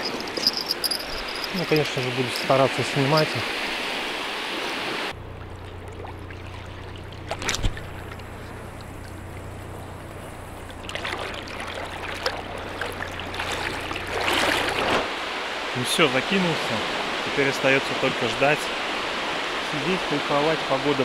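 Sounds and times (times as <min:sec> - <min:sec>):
water sloshing and splashing: 0:00.0 - 0:15.7
steady low hum: 0:05.1 - 0:14.2.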